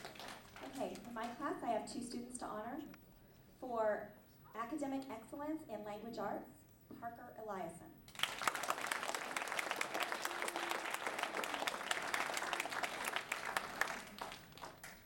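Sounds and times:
audience applauding: 0:00.0 - 0:01.2, 0:08.1 - 0:15.0.

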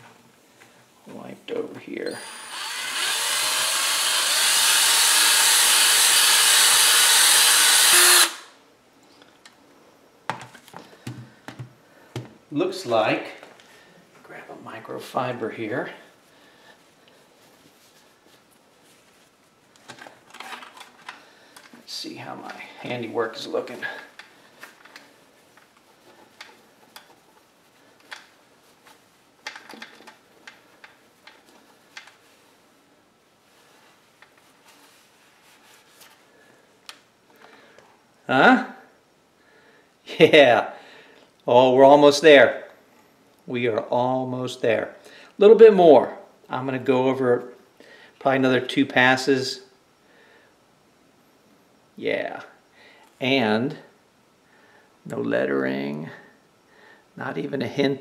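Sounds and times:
electric drill whirring: 0:02.1 - 0:08.5.

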